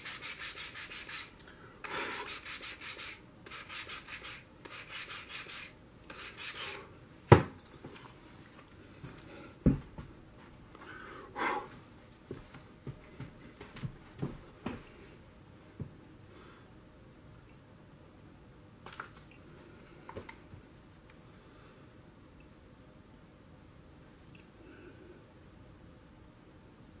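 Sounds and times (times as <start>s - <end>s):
sandpaper rubbing on wood: 0.0s - 1.3s, 1.9s - 6.9s
dull thump: 7.3s - 7.6s.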